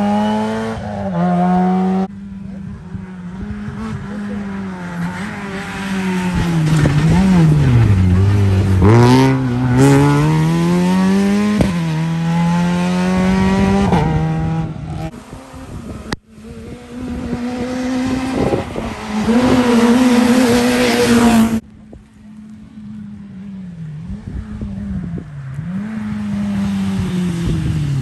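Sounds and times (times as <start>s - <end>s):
rally car engine revving: 0.0s - 21.6s.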